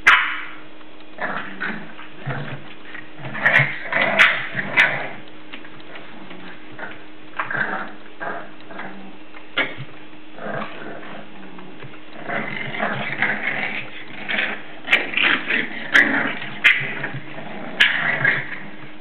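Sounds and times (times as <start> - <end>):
puppy growls and yips: 1.2 - 5.2, 5.9 - 19.0.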